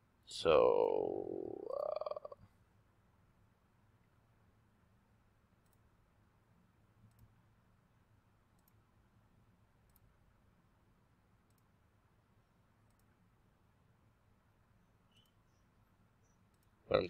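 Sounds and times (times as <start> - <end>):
faint computer mouse clicks: 5.6 - 5.9, 7.0 - 7.4, 8.5 - 8.8, 9.8 - 10.1, 11.4 - 11.7, 12.8 - 13.2, 15.1 - 15.6, 16.2 - 16.8.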